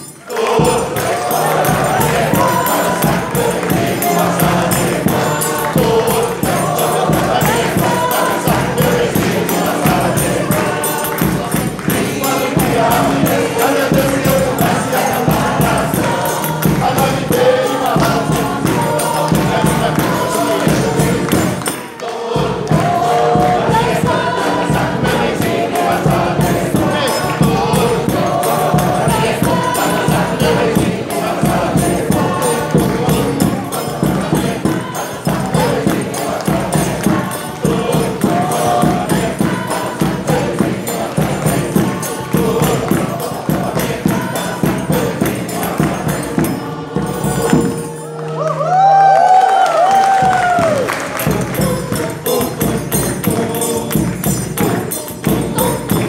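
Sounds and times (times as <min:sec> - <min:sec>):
bass drum rhythm: 0:00.0 - 0:48.0, 0:50.0 - 0:56.0
tambourine: 0:00.0 - 0:48.2, 0:48.8 - 0:56.0
mixed choir singing: 0:00.0 - 0:56.0.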